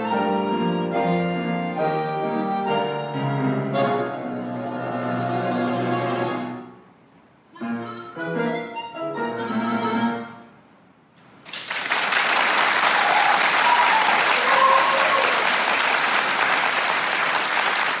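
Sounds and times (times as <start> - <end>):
harmonica and piano chord: 0.0 - 6.8, 7.5 - 10.6
audience applause: 11.5 - 18.0.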